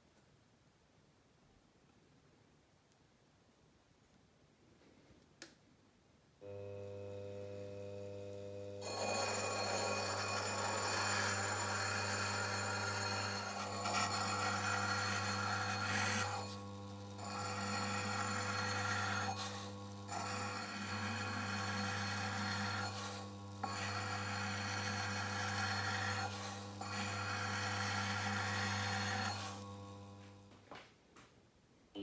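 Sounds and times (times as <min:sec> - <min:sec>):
bench machine motor humming: 0:06.4 - 0:30.6
metal grinding on abrasive wheel: 0:08.8 - 0:30.5.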